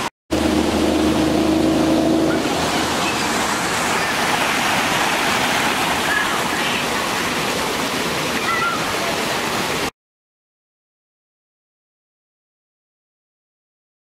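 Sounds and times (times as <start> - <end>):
water rushing over rocks: 0.0 - 9.9.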